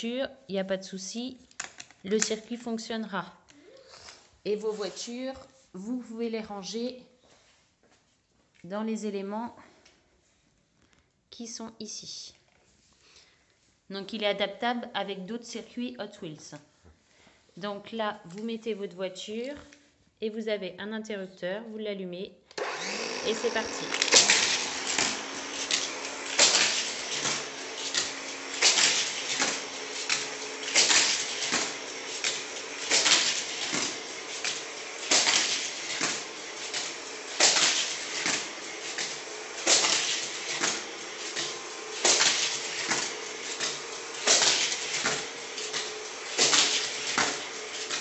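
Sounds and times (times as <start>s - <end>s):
toy booster motor whir: 22.6s - 48.0s.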